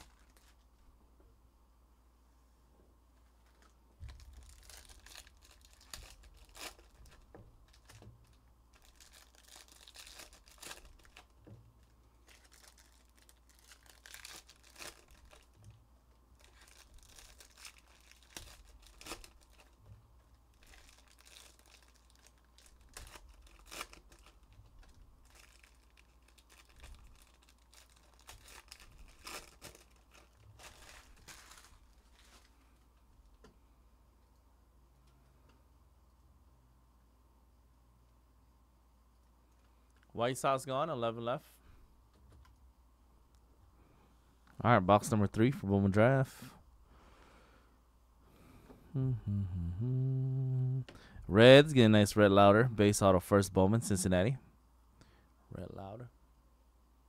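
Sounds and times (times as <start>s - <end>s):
foil wrappers tearing and crinkling: 0.0s - 0.6s, 3.4s - 15.7s, 16.4s - 19.8s, 20.5s - 32.6s.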